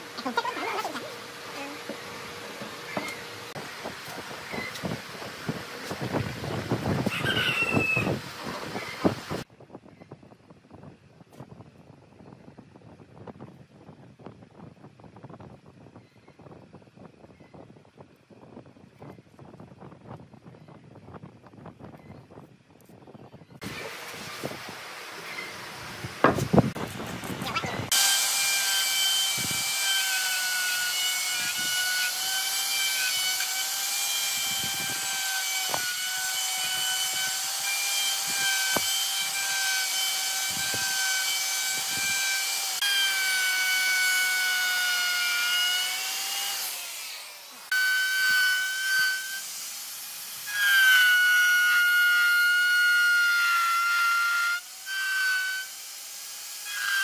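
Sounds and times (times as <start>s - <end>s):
power tool whining on wood: 27.6s - 57.0s.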